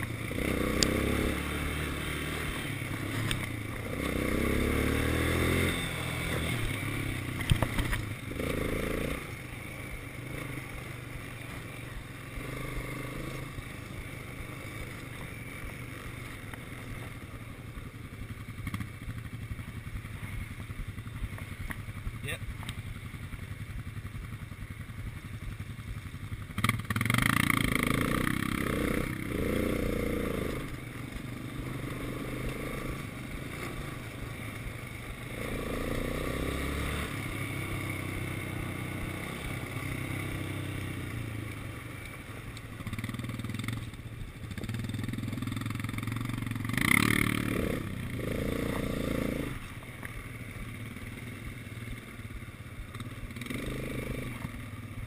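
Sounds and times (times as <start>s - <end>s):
quad bike engine revving: 0.0s - 20.6s, 26.4s - 55.0s.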